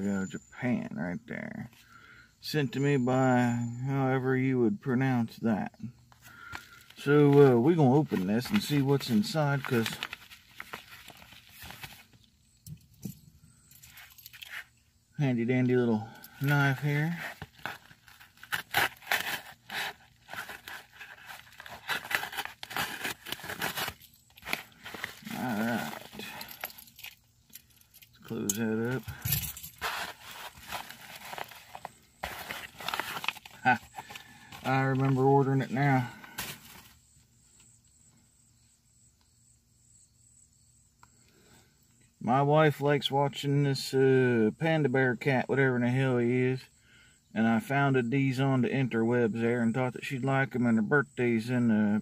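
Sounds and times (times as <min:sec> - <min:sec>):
insects chirring: 0:00.0 - 0:42.3, 0:46.2 - 0:48.6
paper and plastic tearing and crinkling: 0:06.2 - 0:12.2, 0:16.5 - 0:26.5, 0:28.8 - 0:35.3, 0:36.2 - 0:37.0
cardboard box rustling: 0:06.6 - 0:12.2, 0:16.5 - 0:26.3, 0:28.9 - 0:35.2, 0:36.3 - 0:37.0
knife cutting package open: 0:08.4 - 0:12.2, 0:17.2 - 0:26.4, 0:28.9 - 0:35.2.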